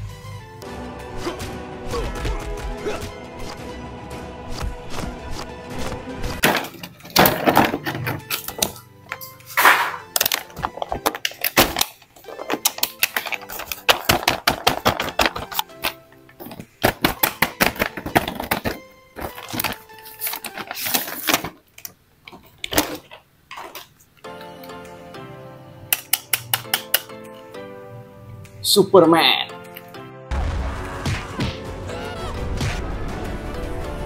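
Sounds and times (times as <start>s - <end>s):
background music: 0.0s - 21.5s, 24.2s - 34.0s
plastic figures clacking: 6.4s - 24.2s, 25.9s - 27.1s
plastic blister pack crinkling: 10.1s - 24.0s.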